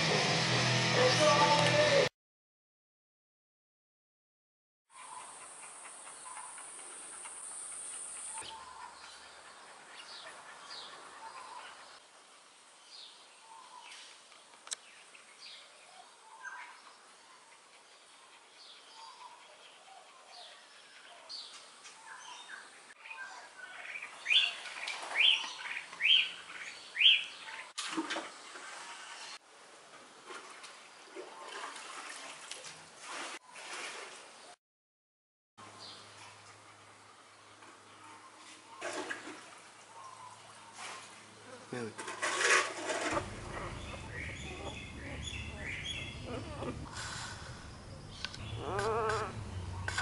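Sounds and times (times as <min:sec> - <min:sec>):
birds chirping: 0:05.0 - 0:12.0, 0:14.8 - 0:27.7, 0:37.2 - 0:40.8, 0:43.1 - 0:50.0.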